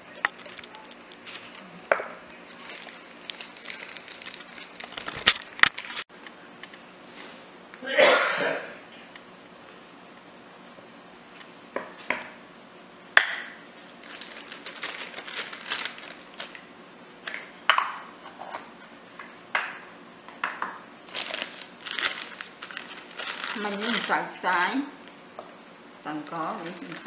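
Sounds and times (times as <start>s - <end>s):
plastic bag rustling: 0.0s - 1.8s, 2.4s - 6.1s, 13.8s - 16.6s, 21.0s - 24.5s, 26.0s - 27.0s.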